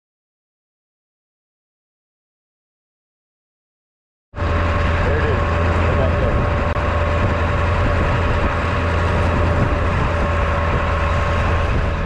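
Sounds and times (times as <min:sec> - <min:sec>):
truck engine hum from cab: 0:04.4 - 0:12.0.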